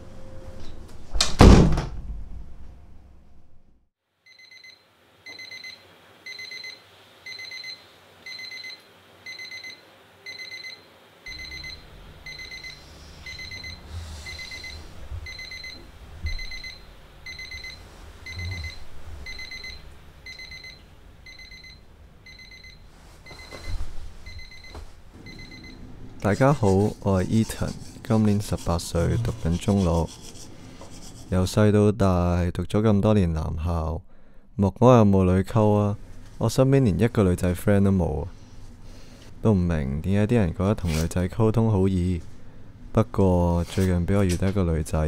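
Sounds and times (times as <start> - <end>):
alarm clock beeping: 4.3 - 26.7
bedding rustling: 22.5 - 25.3.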